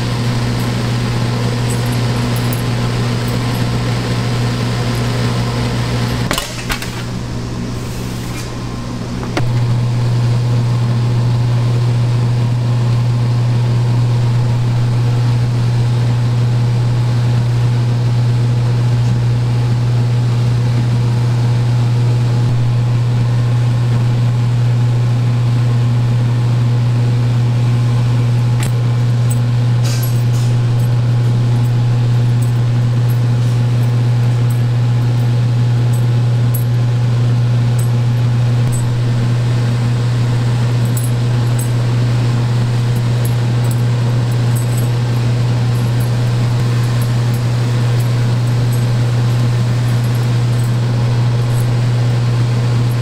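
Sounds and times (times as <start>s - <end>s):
kitchen equipment humming: 0.0s - 18.2s, 26.5s - 53.0s.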